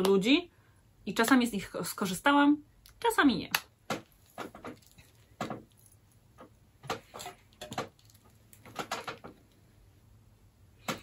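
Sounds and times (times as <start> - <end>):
small items knocking and rustling: 3.8 - 9.6.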